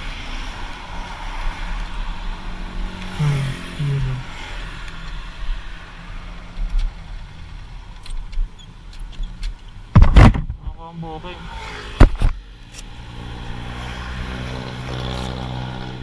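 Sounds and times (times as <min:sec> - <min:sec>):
wind noise: 0:05.0 - 0:10.8.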